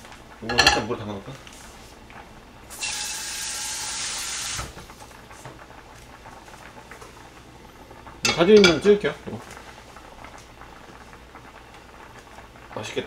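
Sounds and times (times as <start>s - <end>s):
kitchen tap running: 8.1s - 9.1s.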